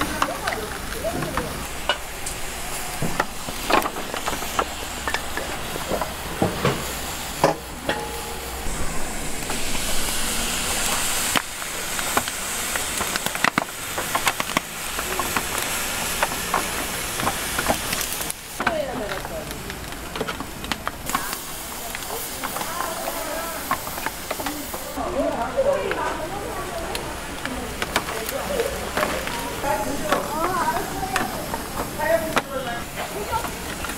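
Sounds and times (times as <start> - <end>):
bright high hiss: 0.0 - 18.6
steady hiss: 0.0 - 33.9.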